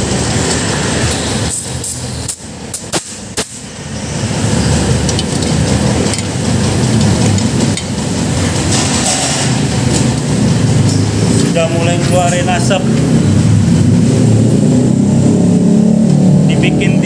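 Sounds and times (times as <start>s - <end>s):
steady low rumble: 3.6s - 17.0s
spanner clinking on metal: 4.7s - 11.0s.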